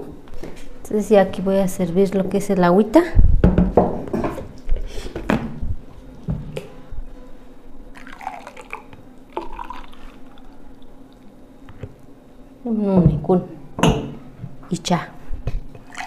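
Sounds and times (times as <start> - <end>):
drink pouring into glasses: 8.0 - 10.4.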